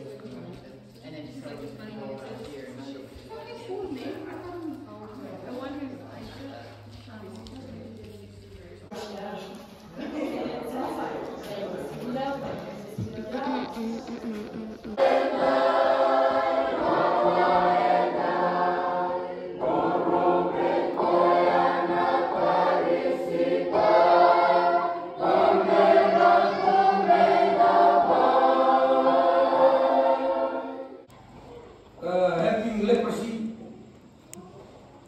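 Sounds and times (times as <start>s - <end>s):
congregation singing a hymn: 10.0s - 31.1s.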